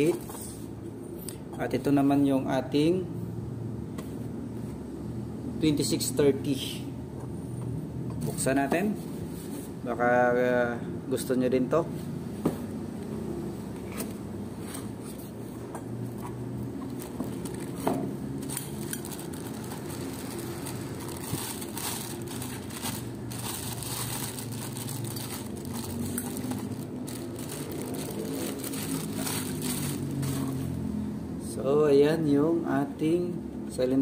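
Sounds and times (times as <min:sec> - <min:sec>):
plastic bag crinkling: 0:16.8 - 0:30.8.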